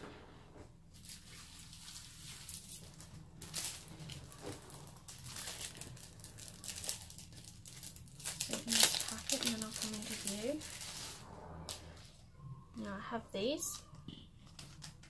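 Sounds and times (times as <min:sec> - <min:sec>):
plastic packet crinkling: 0:01.0 - 0:11.2.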